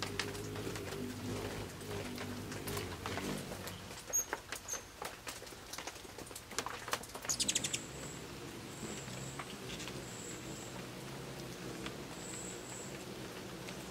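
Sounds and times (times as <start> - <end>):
hummingbirds chipping and clicking: 0.0 - 13.9
high hummingbird squeaks: 2.4 - 4.9, 7.3 - 13.9.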